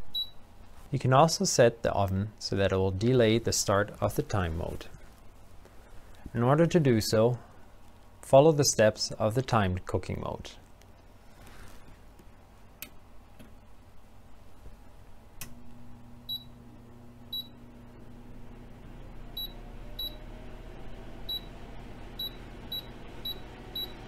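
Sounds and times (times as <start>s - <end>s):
oven control panel beeps: 0.1s - 0.4s, 16.3s - 16.6s, 17.3s - 17.6s, 19.4s - 20.2s, 21.3s - 21.5s, 22.2s - 24.0s
oven humming: 15.3s - 24.0s.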